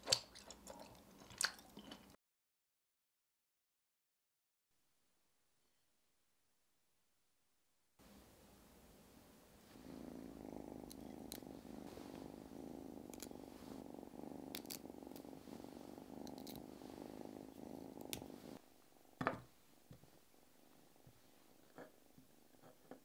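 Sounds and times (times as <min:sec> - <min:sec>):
cat purring: 0:09.0 - 0:19.2.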